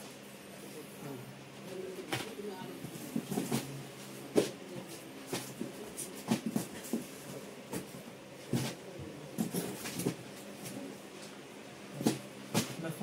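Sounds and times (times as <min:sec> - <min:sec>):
cardboard boxes tapping and knocking: 0:04.3 - 0:08.8.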